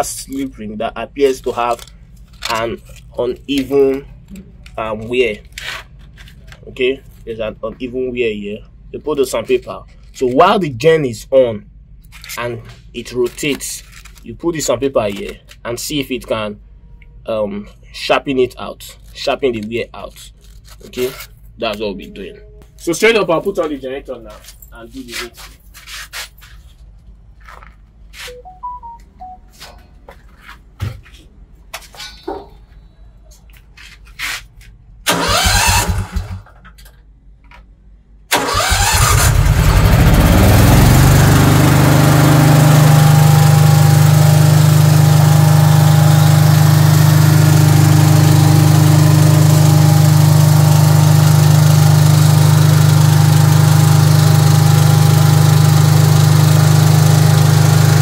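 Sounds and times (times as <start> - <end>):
generator engine cranking and running: 35.1 - 36.6, 38.3 - 58.0.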